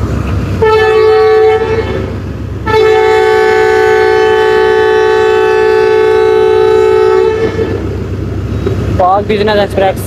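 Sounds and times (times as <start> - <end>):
locomotive air horn blast: 0.6 - 8.0.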